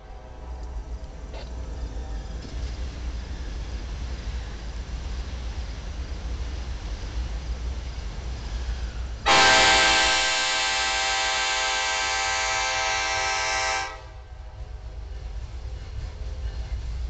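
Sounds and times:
low train rumble: 0.0 - 17.0
locomotive air horn: 9.3 - 14.3.

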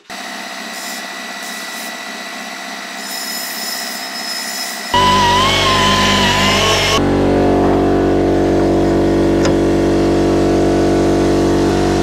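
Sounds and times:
power tool whining: 0.0 - 7.2
air compressor humming: 0.0 - 12.0.

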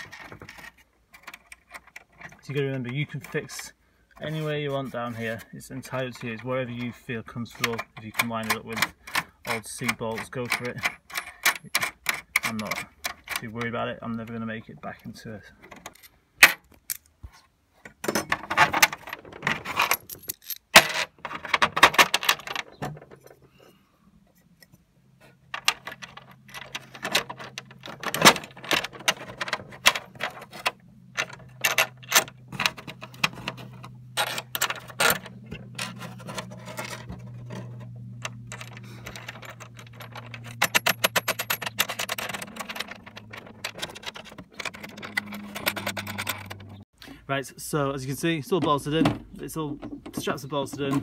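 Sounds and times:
metal bolts and nuts clinking: 0.0 - 3.6, 5.2 - 17.2, 17.8 - 23.5, 24.6 - 46.8
low steady hum: 22.2 - 46.9.

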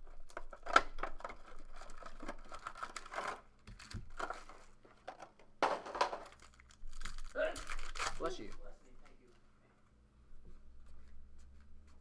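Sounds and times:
plastic shrink-wrap tearing: 0.5 - 4.5, 6.2 - 8.7.

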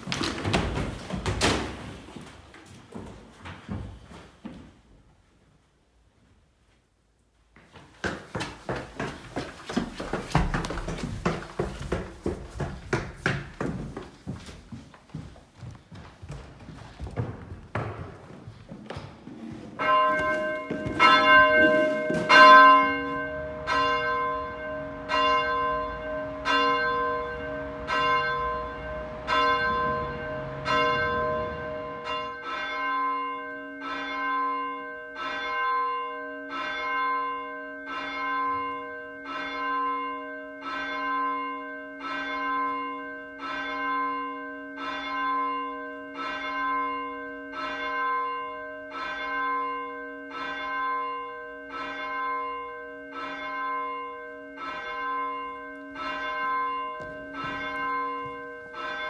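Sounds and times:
church bell tolling: 19.8 - 59.0.

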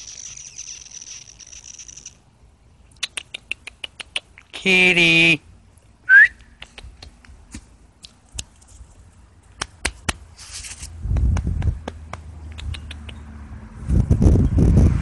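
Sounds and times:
cat chirping: 0.0 - 2.2.

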